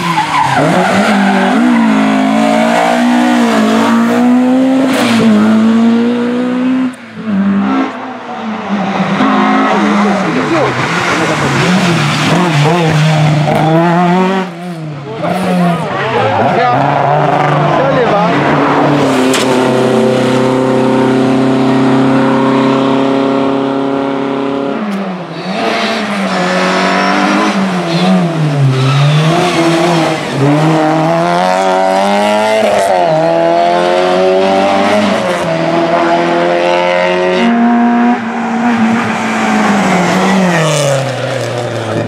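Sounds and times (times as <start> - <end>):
tire squeal: 0.0 - 3.5
rally car engine revving: 0.0 - 42.0.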